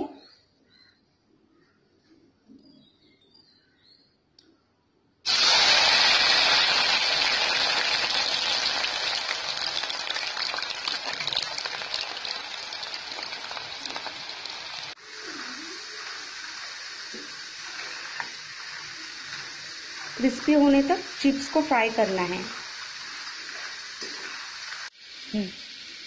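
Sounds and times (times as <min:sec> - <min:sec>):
food sizzling in hot oil: 0:05.3 - 0:26.0.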